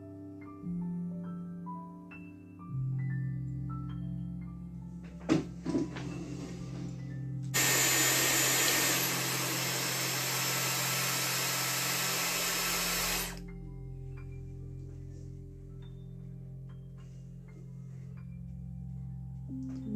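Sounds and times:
soft background music: 0:00.0 - 0:07.5, 0:13.4 - 0:19.9
hair styler blowing air: 0:07.6 - 0:13.4.

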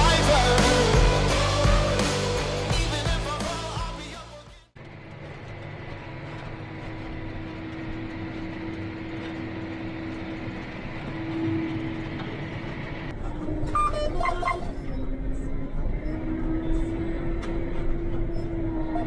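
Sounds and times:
tractor engine rumble: 0:04.8 - 0:19.0.

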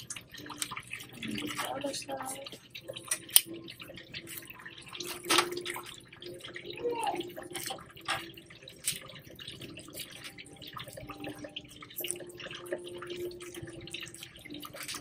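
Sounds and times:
faint steady hum: 0:00.0 - 0:15.0
lobster shell clicking and crackling: 0:00.0 - 0:15.0.

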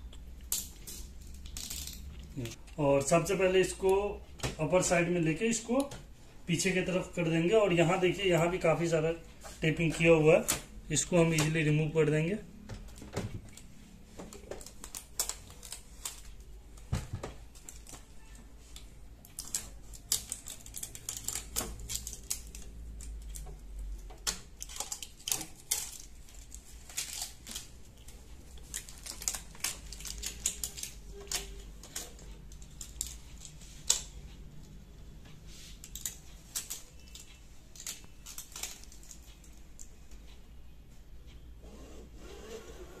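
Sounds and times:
plastic packing pieces handled: 0:13.4 - 0:34.0
tape being peeled off plastic: 0:14.3 - 0:16.3, 0:24.2 - 0:34.1.

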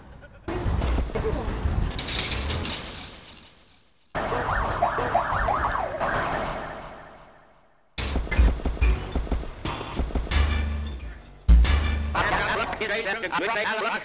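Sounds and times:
fast wavering siren: 0:04.2 - 0:07.2.

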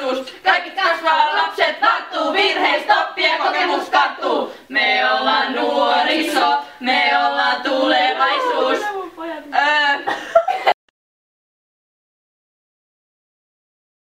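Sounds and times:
women singing together: 0:00.0 - 0:10.7.

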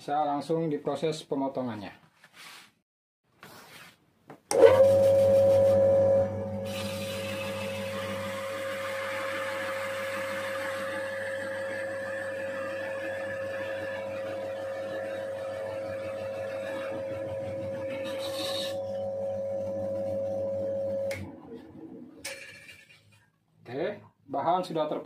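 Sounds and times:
electric motor humming and whining: 0:04.5 - 0:21.6.

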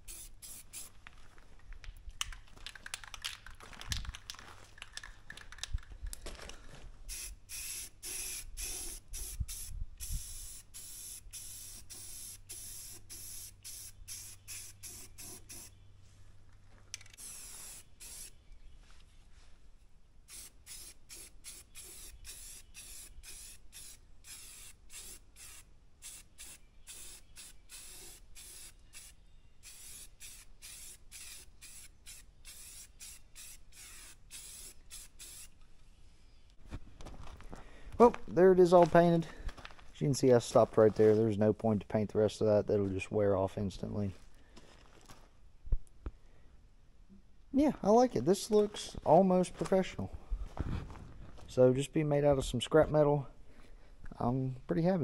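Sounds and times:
spray-paint can hissing: 0:00.0 - 0:00.9, 0:07.1 - 0:15.7, 0:17.2 - 0:18.3, 0:20.3 - 0:35.5.

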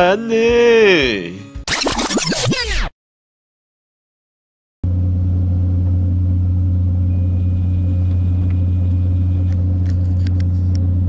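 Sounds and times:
boat engine humming: 0:04.9 - 0:11.0.

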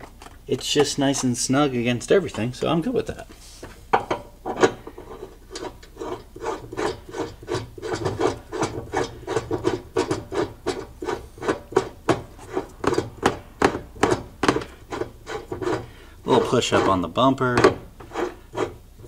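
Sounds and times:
metal rubbing and rasping: 0:05.0 - 0:13.4, 0:14.0 - 0:18.8.

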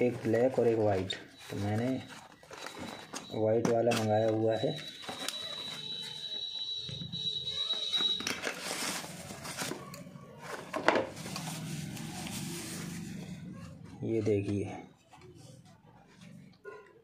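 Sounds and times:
cardboard box rustling: 0:08.4 - 0:09.8.

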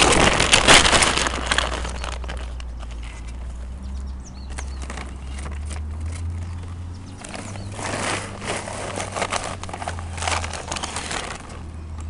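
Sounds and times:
shovel digging into wood chips: 0:07.2 - 0:11.6.

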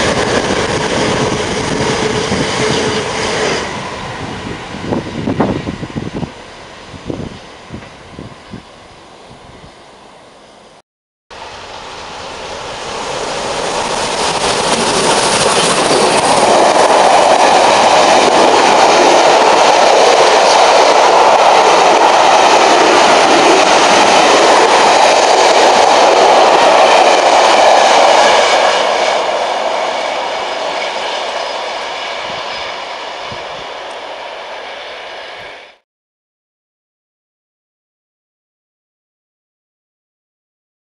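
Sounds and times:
train wheels clattering on rails: 0:13.3 - 0:34.1.

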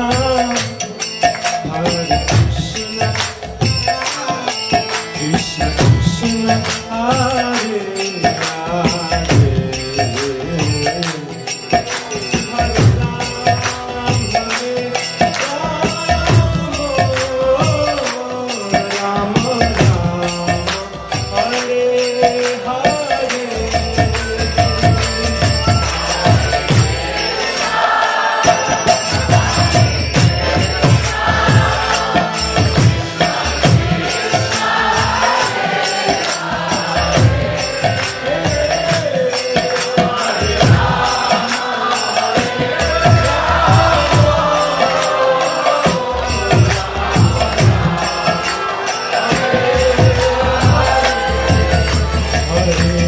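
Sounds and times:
drum beat: 0:00.0 - 0:53.0
small hand cymbals: 0:00.0 - 0:53.0
voices chanting: 0:24.5 - 0:53.0.

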